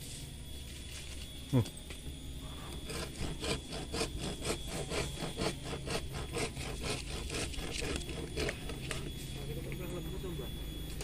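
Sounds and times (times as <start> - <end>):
hand saw cutting branch: 2.8 - 9.1.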